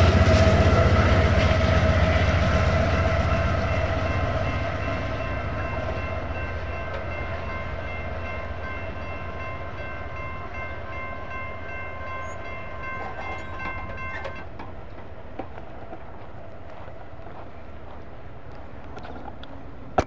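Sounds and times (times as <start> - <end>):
train rumble: 0.0 - 20.0
electronic crossing bell ringing: 3.4 - 14.5.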